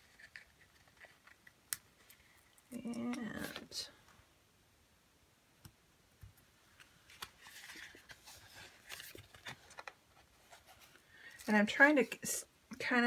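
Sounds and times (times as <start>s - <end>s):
paper handling: 7.0s - 11.5s.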